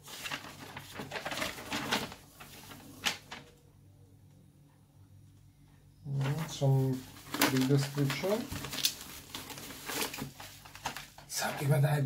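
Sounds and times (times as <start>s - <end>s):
paper rustling and crackling: 0.0s - 3.6s, 6.1s - 11.7s.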